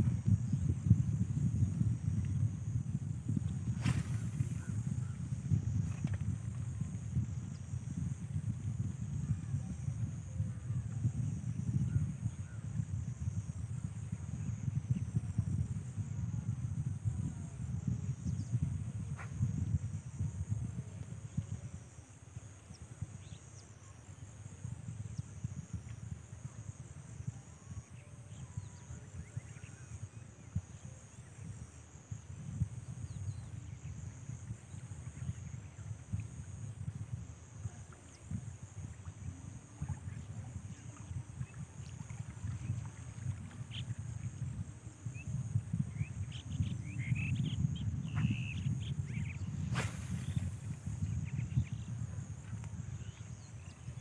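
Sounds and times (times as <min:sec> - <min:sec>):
wind rumbling on microphone: 0:00.0 - 0:54.0
insects trilling: 0:02.7 - 0:07.8, 0:26.6 - 0:54.0.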